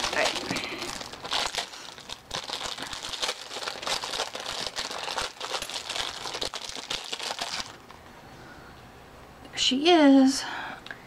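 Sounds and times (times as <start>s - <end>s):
plastic wrapper crinkling: 0.0s - 8.0s.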